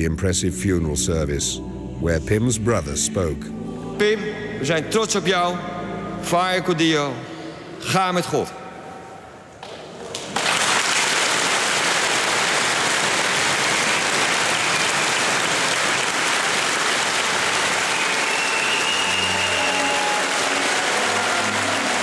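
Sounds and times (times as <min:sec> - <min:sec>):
crowd applauding: 0:09.6 - 0:22.0.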